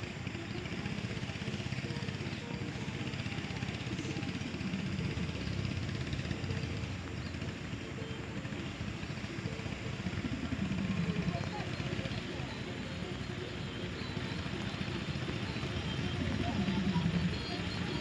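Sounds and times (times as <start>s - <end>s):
small boat engine running: 0.0s - 18.0s.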